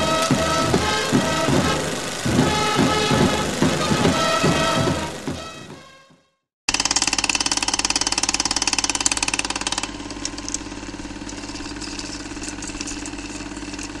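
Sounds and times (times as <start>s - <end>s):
film projector clattering: 0.0s - 5.5s, 6.7s - 14.0s
projector hum: 0.0s - 5.9s.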